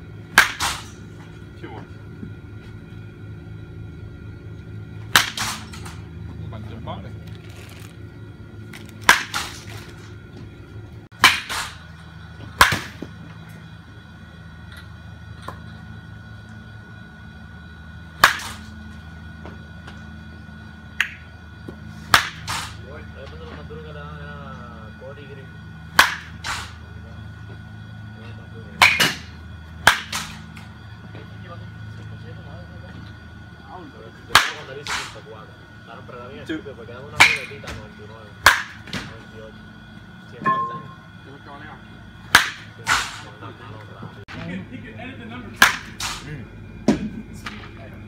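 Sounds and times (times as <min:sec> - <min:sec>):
baseball bat hitting ball: 0:00.3 - 0:01.0, 0:05.1 - 0:06.0, 0:09.0 - 0:09.6, 0:11.2 - 0:11.8, 0:12.6 - 0:13.1, 0:18.2 - 0:18.7, 0:22.1 - 0:22.8, 0:26.0 - 0:26.8, 0:28.8 - 0:30.4, 0:34.3 - 0:35.1, 0:38.4 - 0:38.8, 0:42.3 - 0:43.2, 0:45.6 - 0:46.2.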